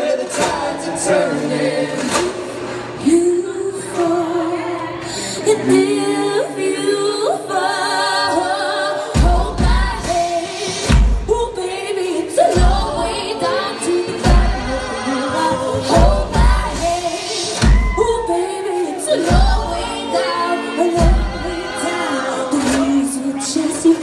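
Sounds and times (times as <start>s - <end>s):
voices singing in close harmony: 0.0s - 24.0s
heavy low drum beat: 15.9s - 18.3s.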